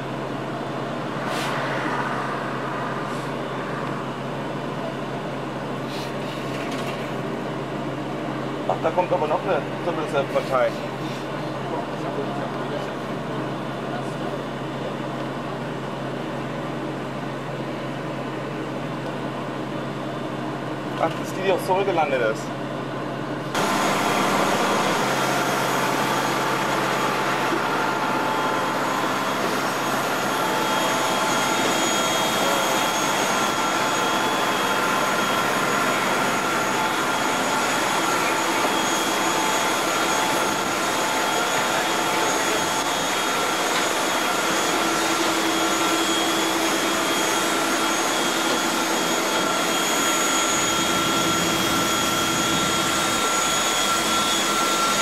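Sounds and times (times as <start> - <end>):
jet airliner engine noise: 0.0 - 55.0.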